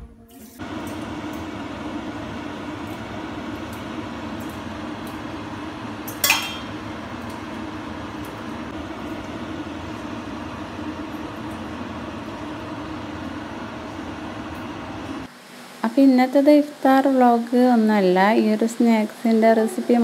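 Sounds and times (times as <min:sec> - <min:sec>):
steady low hum: 0:00.0 - 0:16.2
glass mug clink: 0:06.1 - 0:06.8.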